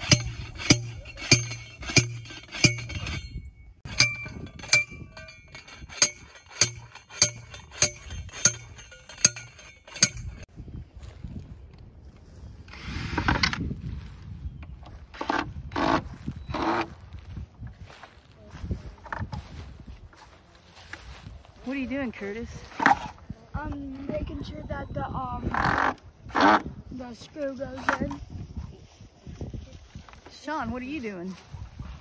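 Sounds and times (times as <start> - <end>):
post driver metal clanks: 0.0 - 10.5.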